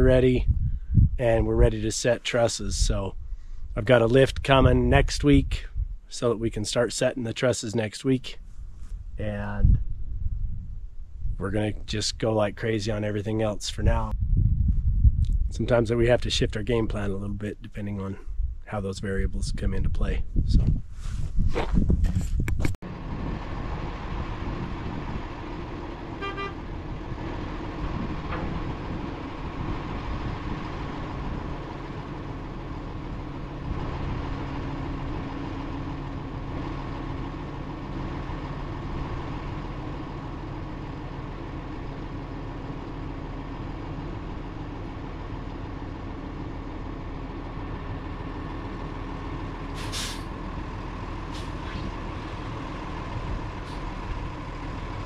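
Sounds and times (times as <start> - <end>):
diesel truck engine running: 22.8 - 55.0
short hiss of air: 49.8 - 50.3, 51.3 - 51.9.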